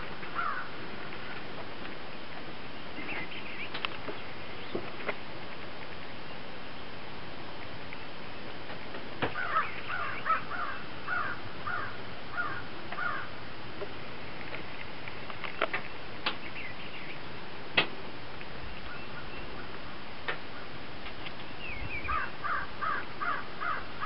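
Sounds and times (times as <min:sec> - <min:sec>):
crow cawing: 0:00.3 - 0:00.7, 0:09.4 - 0:13.3, 0:22.1 - 0:24.0.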